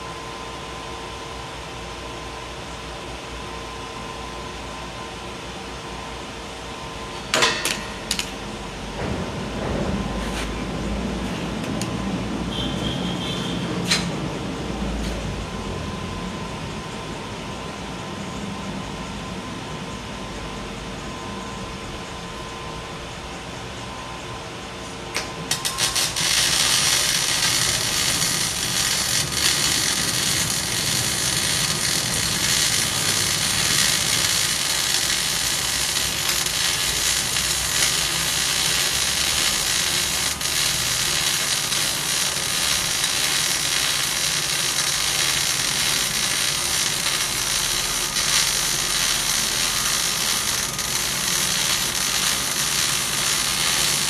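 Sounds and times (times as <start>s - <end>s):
welding arc crackling and sizzling: 7.3s - 9.4s, 25.1s - 54.0s.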